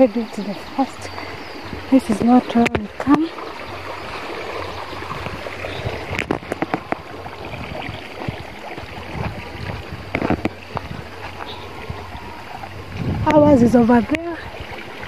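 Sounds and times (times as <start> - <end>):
small stream rushing: 0.0 - 15.0
footsteps through grass: 8.1 - 13.1.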